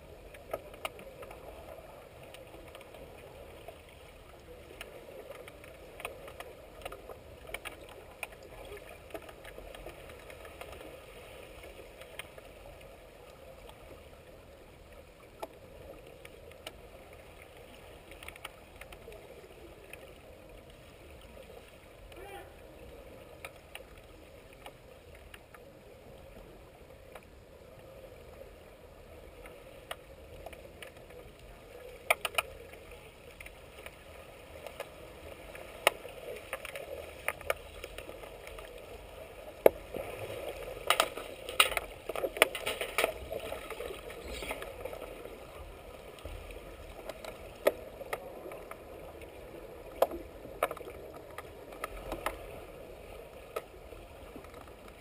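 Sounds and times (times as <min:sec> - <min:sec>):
muffled underwater hiss: 0:43.3 - 0:55.0.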